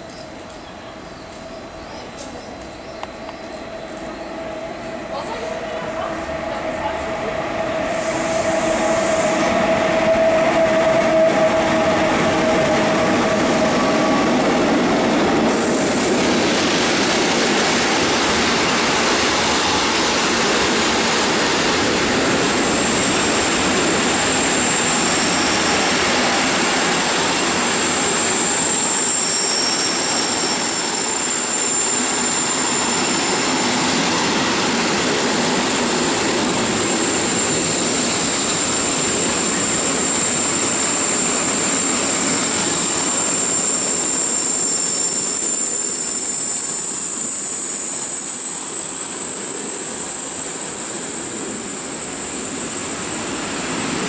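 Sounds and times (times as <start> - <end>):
train wheels rushing on rail: 0.0 - 54.0
high wheel squeal: 22.6 - 35.0, 35.6 - 53.3.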